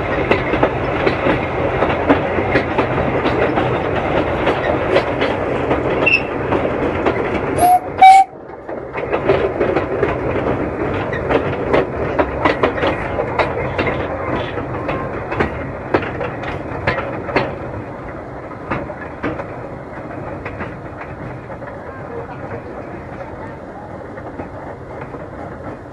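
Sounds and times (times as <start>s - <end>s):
train wheels clicking over rail joints: 0.0s - 25.9s
steam whistle toots: 7.6s - 8.4s.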